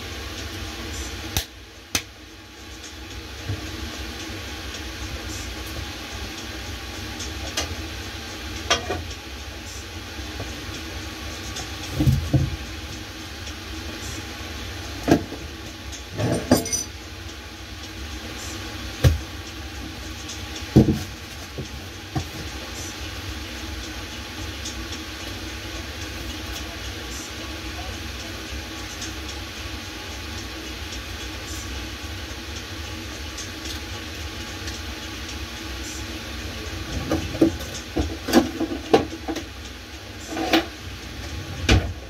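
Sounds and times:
pots and utensils clunking: 8.7s - 9.1s, 16.1s - 17.0s.

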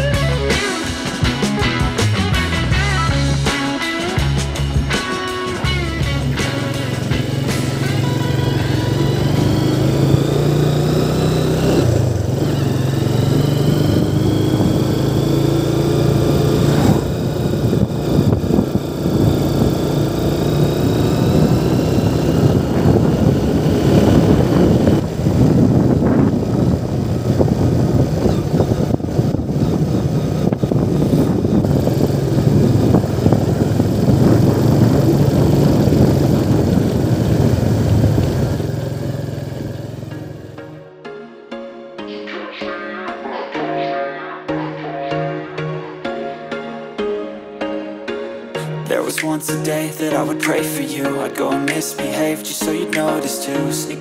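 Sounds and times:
wind and road noise: 0.0s - 40.7s
motorcycle engine running: 0.0s - 40.8s.

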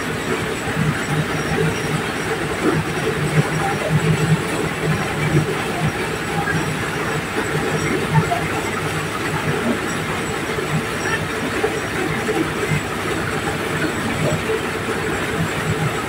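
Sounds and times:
corn sheller machine running: 0.0s - 16.0s.

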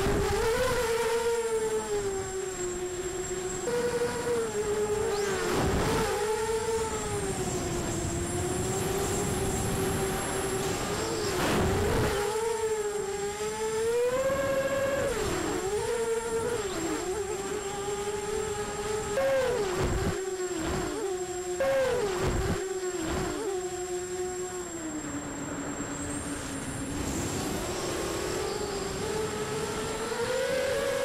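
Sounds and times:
quadcopter motors whining: 0.0s - 31.0s
wind gusts on microphone: 3.6s - 12.7s.

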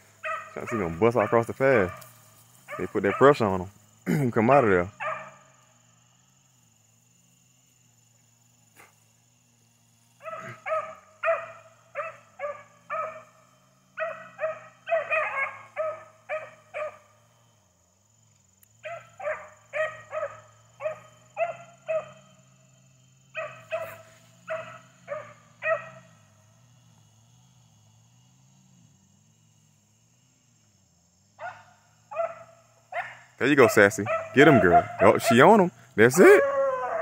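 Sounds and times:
dogs baying: 0.2s - 3.6s, 4.9s - 5.5s, 10.2s - 17.1s, 18.8s - 22.3s, 23.4s - 26.1s, 31.4s - 37.0s.

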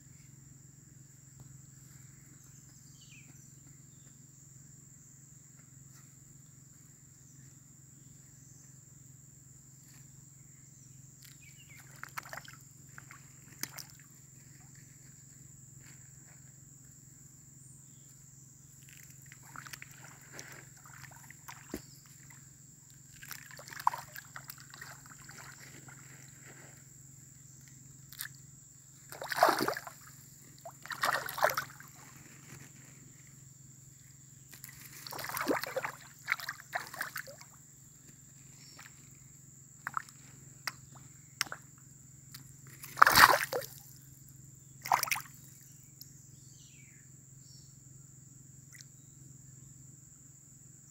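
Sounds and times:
fish splashing in stream: 11.8s - 14.7s, 18.9s - 22.4s, 23.1s - 26.0s, 29.0s - 32.3s, 34.5s - 37.5s, 39.8s - 40.1s, 42.8s - 43.8s, 44.8s - 45.4s
water sloshing: 18.8s - 26.7s, 29.0s - 32.6s, 34.5s - 37.6s, 42.8s - 43.8s, 44.8s - 45.3s.

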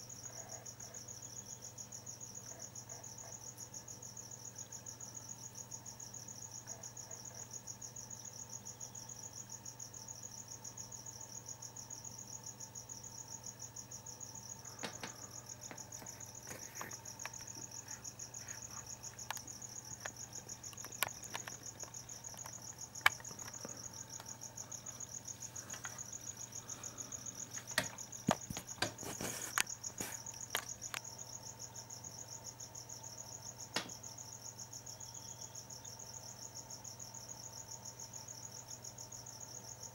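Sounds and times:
crickets trilling: 0.0s - 39.9s.

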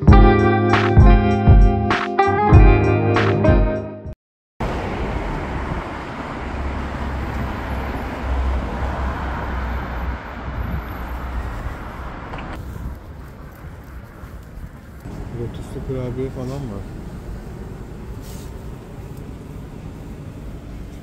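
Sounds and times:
cars passing: 4.6s - 21.0s
deep engine rumble: 12.6s - 21.0s.

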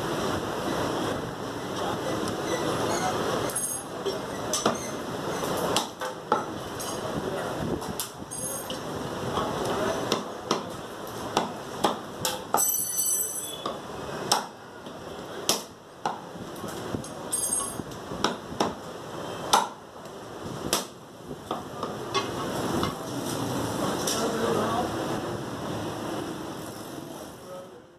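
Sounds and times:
cleaver chopping meat on wood: 5.7s - 6.5s, 10.1s - 12.5s, 13.6s - 14.6s, 15.4s - 16.3s, 18.2s - 18.8s, 19.5s - 19.8s, 20.7s - 22.0s
high ringing ping: 12.6s - 13.7s.

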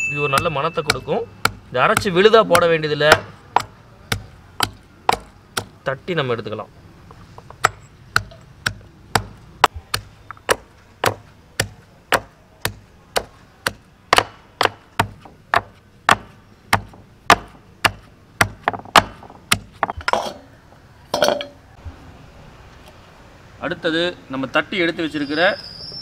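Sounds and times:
metal pestle pounding in stone mortar: 0.2s - 5.7s, 7.6s - 20.4s.

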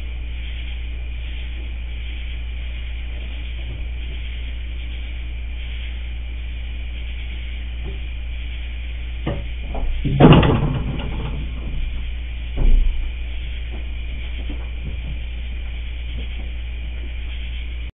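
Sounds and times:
low hum: 0.0s - 17.9s
knocks on wooden deck: 9.2s - 13.1s
loud thud with rattling: 9.2s - 15.3s.

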